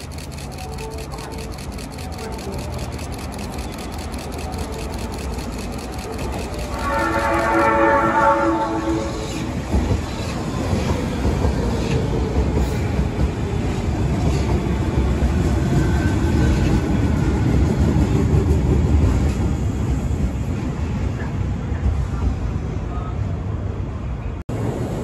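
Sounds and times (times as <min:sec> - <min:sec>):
rail joint clicks: 0:00.0 - 0:08.1
train wheels rumbling on rail: 0:00.0 - 0:25.0.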